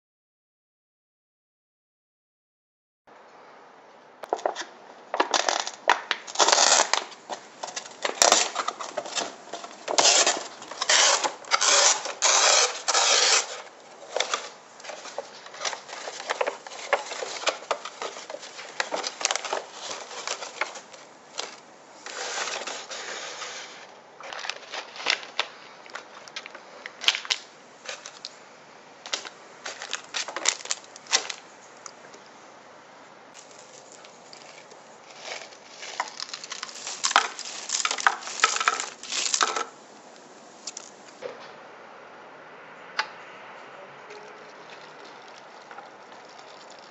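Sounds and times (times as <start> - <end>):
plastic packaging crinkling: 4.2 - 28.4, 29.1 - 31.5, 33.4 - 41.2, 44.2 - 46.9.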